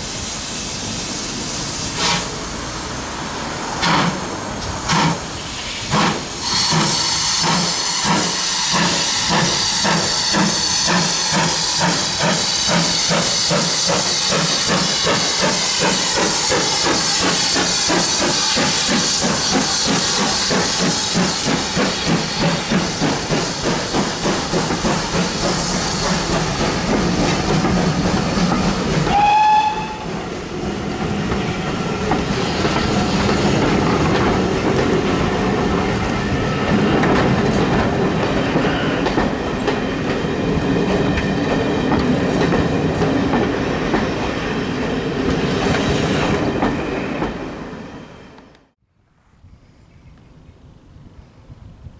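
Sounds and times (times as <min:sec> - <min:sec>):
steam locomotive exhaust beats: 0:00.0 - 0:02.9, 0:03.7 - 0:44.4
steam hissing: 0:00.0 - 0:30.6
train wheels clacking over rail joints: 0:03.8 - 0:05.3, 0:05.9 - 0:29.3, 0:31.0 - 0:35.9, 0:36.6 - 0:44.3.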